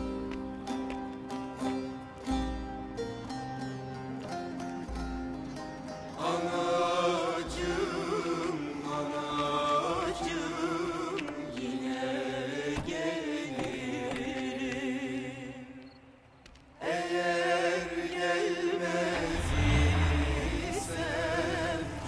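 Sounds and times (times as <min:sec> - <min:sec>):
plucked string notes: 0:00.0 - 0:09.5
person singing slow melody: 0:06.1 - 0:16.0, 0:16.8 - 0:22.0.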